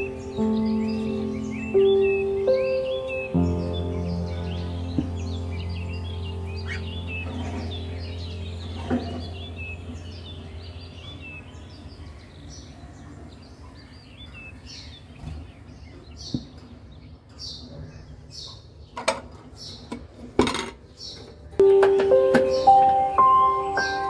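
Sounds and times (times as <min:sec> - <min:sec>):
cockatiels chirping: 0:04.3 - 0:15.2
sharp clattering knocks: 0:21.6 - 0:23.1.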